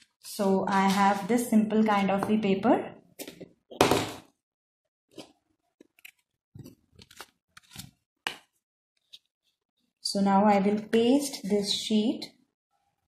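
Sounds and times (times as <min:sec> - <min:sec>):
paper rustling: 0:06.0 - 0:08.0.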